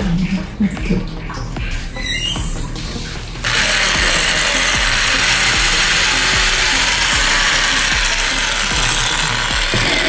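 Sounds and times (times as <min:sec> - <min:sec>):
electric drill cutting plastic: 0:03.4 - 0:10.0.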